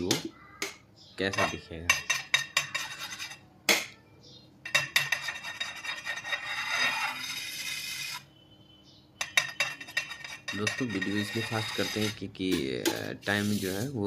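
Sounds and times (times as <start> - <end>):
palette knife scraping cream: 4.9 - 8.2, 9.4 - 12.3.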